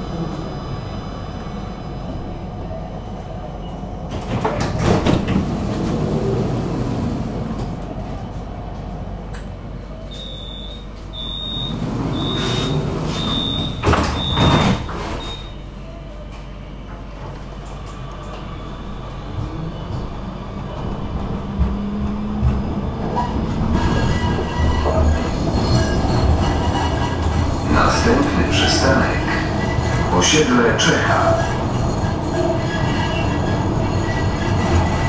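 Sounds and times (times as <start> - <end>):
sliding doors shutting: 4.1 - 7.8, 10.1 - 15.6
short high warning beeps: 10.1 - 14.6, 15.2 - 15.7.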